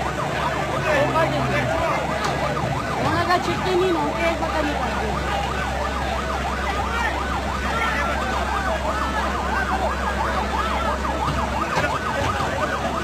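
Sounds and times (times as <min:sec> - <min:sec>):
siren yelping: 0:00.0 - 0:13.0.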